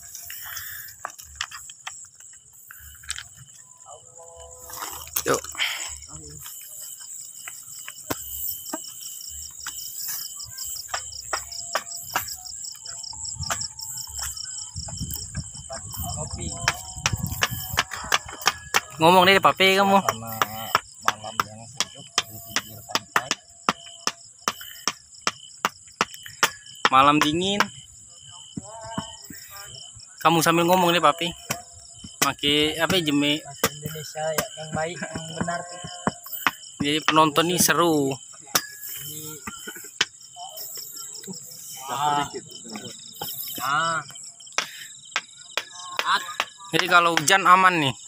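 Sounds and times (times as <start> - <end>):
crickets chirping: 0.0 - 48.0.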